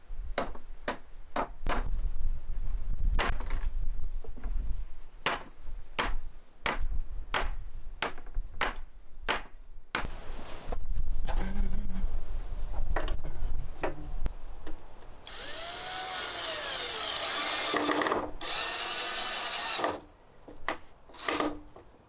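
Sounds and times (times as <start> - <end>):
hatchet chopping wood: 0.4 - 1.9, 5.2 - 10.1.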